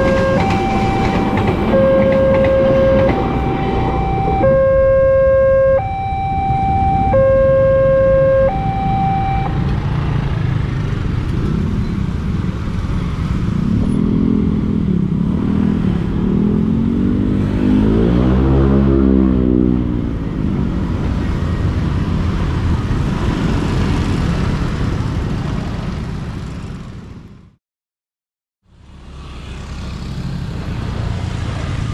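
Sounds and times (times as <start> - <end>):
two-tone crossing alarm: 0.0 - 9.8
motorcycle and car engines: 0.0 - 27.6, 28.7 - 31.9.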